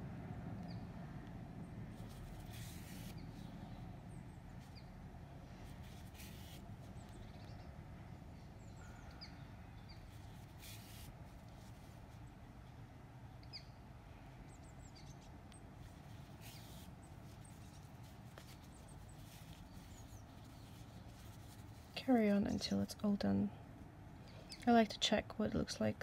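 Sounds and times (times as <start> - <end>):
low steady rumble: 0.0 - 26.0
yarn rustling: 1.9 - 3.8, 5.4 - 7.0, 10.1 - 12.2, 15.8 - 22.4
birds chirping: 5.9 - 11.0, 13.3 - 23.2, 24.2 - 24.9.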